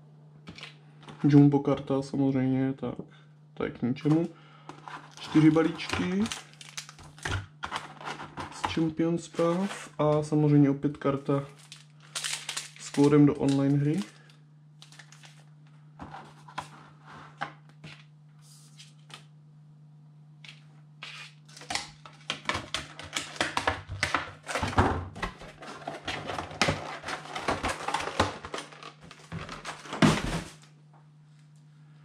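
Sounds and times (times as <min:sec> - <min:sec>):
steady low hum: 0:00.0 - 0:32.0
plastic packaging crinkling: 0:04.8 - 0:08.7, 0:11.4 - 0:15.6, 0:25.3 - 0:30.7.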